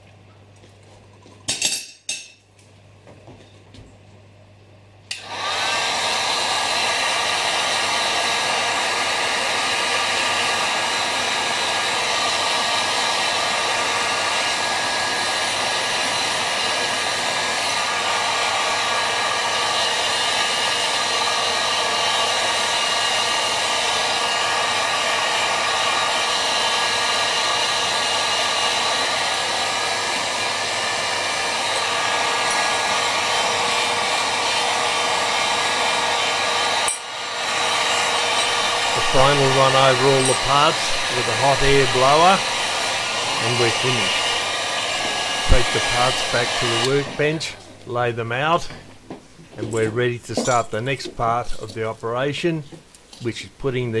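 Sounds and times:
heat gun fan motor running: 5.1s - 47.7s.

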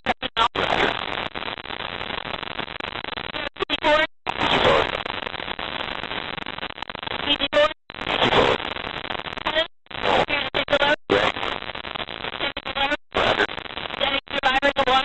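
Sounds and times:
crew voice: 0.0s - 1.0s, 3.4s - 5.0s, 7.2s - 8.7s, 9.4s - 11.6s, 12.4s - 15.0s.

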